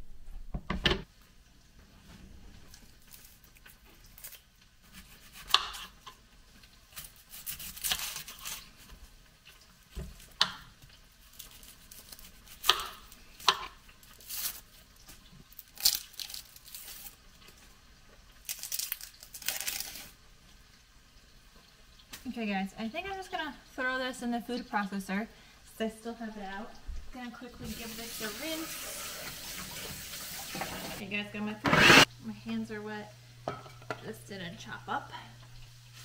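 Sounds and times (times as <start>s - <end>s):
onion skins crackling as torn: 2.7s - 20.3s.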